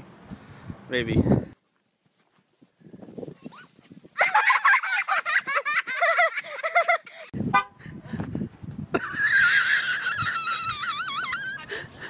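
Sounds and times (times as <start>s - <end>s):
high-pitched vocal squeals: 3.3s - 3.7s, 10.1s - 11.8s.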